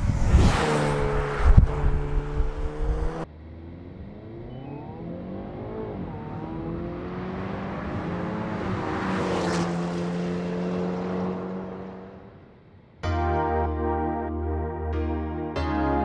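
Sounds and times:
tyre and wind noise: 0.0 - 3.3
car engine accelerating: 0.0 - 12.6.

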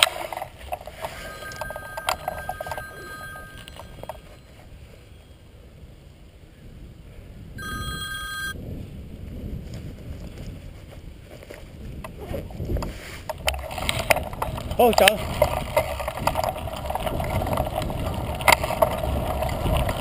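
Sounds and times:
mobile phone ringing: 1.1 - 4.5, 7.6 - 8.6.

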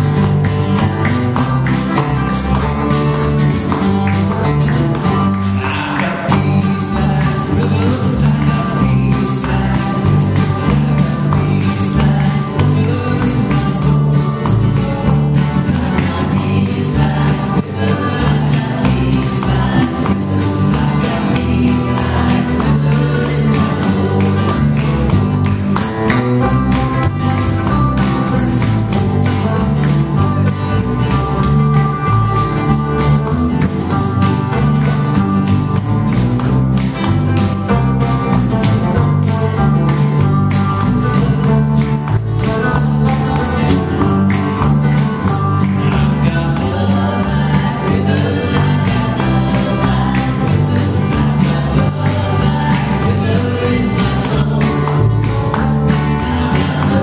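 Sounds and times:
live band playing: 0.0 - 57.0
percussion beat: 0.0 - 57.0.

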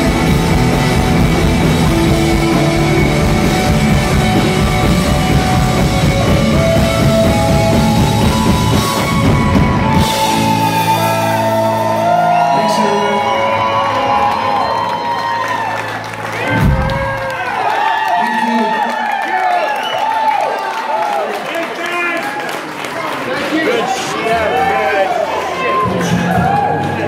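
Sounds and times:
live rock band playing: 0.0 - 17.4.

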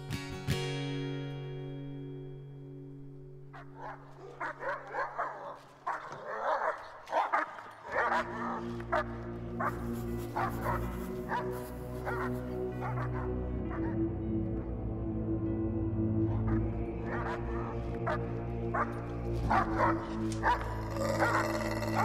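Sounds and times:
dog barking: 3.5 - 14.1, 16.3 - 22.0
low sustained music drone: 8.0 - 22.0.

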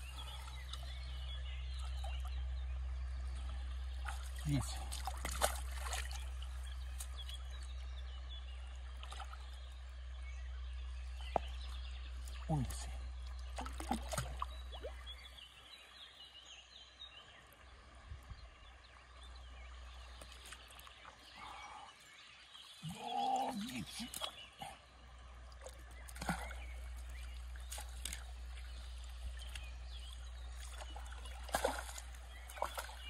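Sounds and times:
river water splashing and trickling: 0.0 - 33.0.

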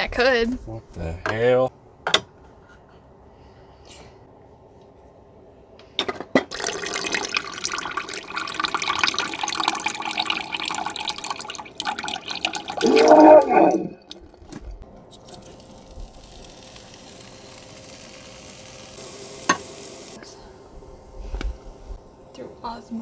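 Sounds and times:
liquid gurgle: 6.5 - 14.8.

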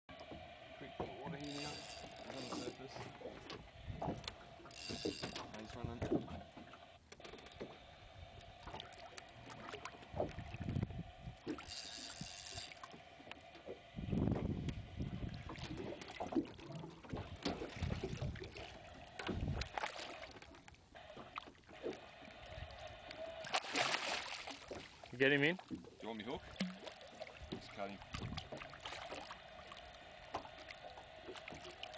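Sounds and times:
steady hum: 0.1 - 25.0, 26.4 - 31.9
water lapping against boat: 0.1 - 31.9
low buffeting bumps: 13.9 - 16.0.

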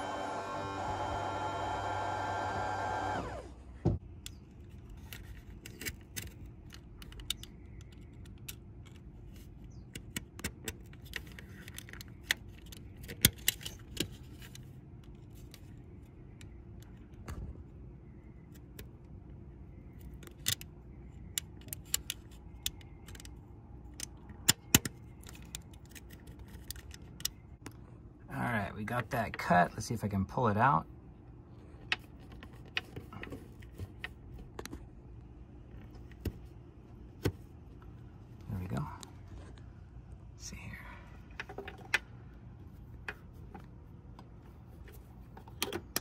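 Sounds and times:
hand tool clicking and scraping rubber: 4.2 - 15.7.

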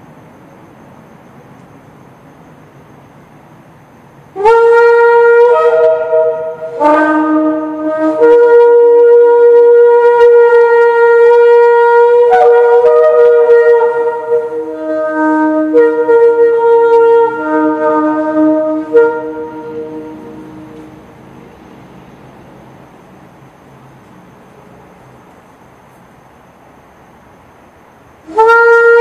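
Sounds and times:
horn blown in sustained notes: 4.3 - 21.2, 28.2 - 29.0.

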